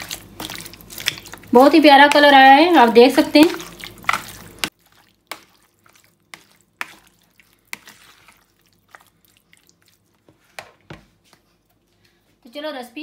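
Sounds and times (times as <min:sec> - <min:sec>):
spatula stirring wet chicken: 0:00.0 - 0:12.0.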